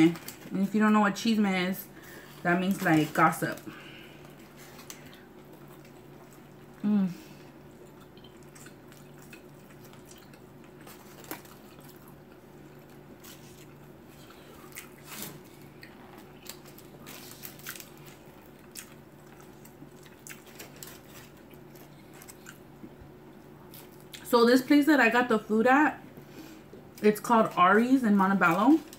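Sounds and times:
faint steady hum: 0.0 - 28.9
biting and chewing food: 2.3 - 6.8, 7.4 - 24.3.

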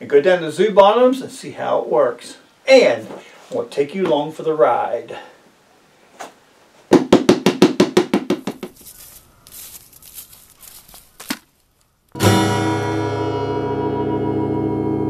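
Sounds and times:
sharp percussive knocks: 6.9 - 8.8
folk-style background music: 12.2 - 15.0.

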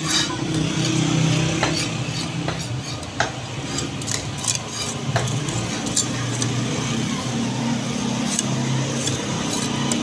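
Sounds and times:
knife cutting on chopping block: 0.0 - 6.6.

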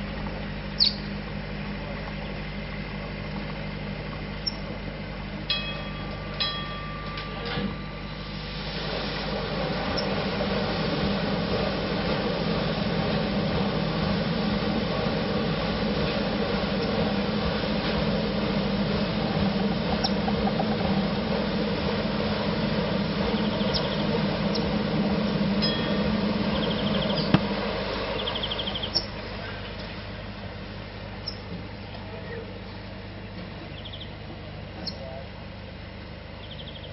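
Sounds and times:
paddle steamer churning: 0.0 - 36.4
short ringing clink: 5.5 - 8.0.

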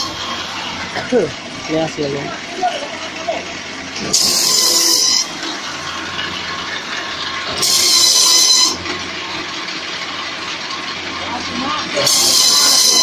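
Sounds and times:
high hissing rasp of rollers: 0.0 - 1.2, 4.0 - 6.2, 7.4 - 8.8, 11.2 - 13.0.

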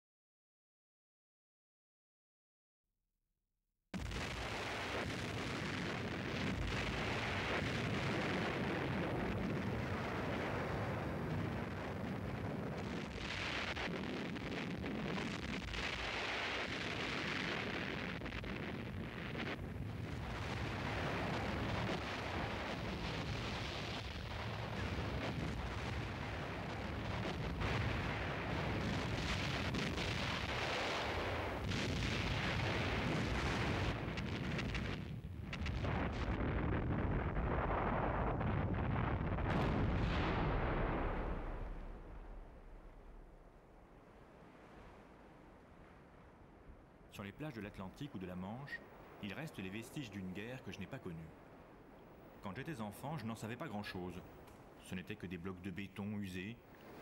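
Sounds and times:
explosions and artillery fire: 4.0 - 43.8.

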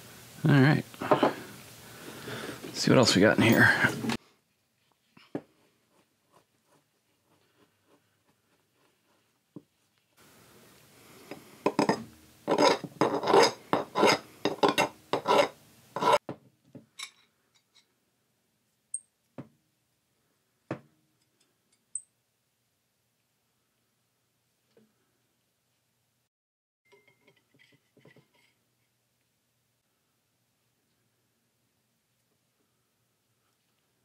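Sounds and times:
file scraping steel: 11.7 - 16.2.

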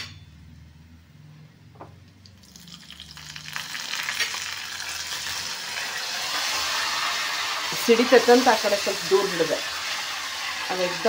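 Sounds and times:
spices sizzling in ghee: 2.2 - 11.0.

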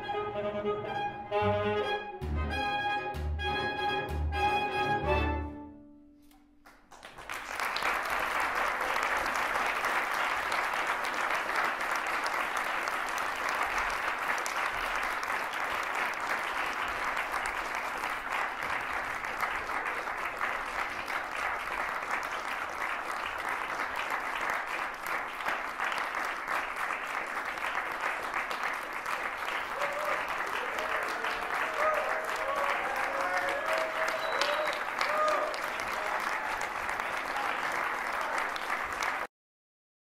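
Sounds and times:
music: 0.0 - 6.6
audience applause: 6.6 - 39.3.

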